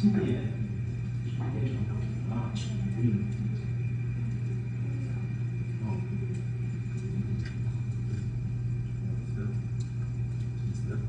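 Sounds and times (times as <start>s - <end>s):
steady low hum: 0.0s - 11.0s
faint clicks: 9.5s - 10.9s.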